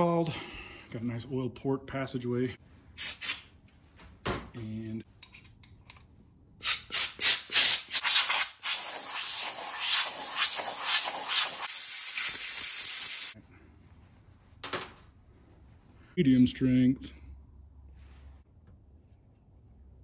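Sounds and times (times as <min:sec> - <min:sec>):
pressurized spray hissing: 0:06.9 - 0:13.4.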